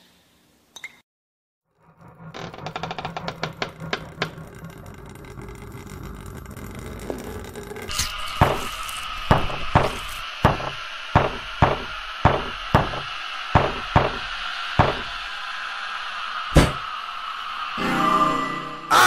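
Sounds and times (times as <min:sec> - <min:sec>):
loud knocks: 0:09.3 - 0:15.2.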